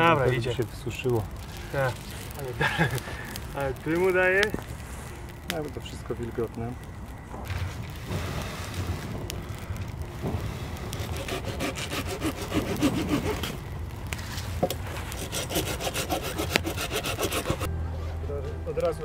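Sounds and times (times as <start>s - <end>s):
hand saw cutting wood: 11.1s - 13.6s, 15.1s - 18.5s.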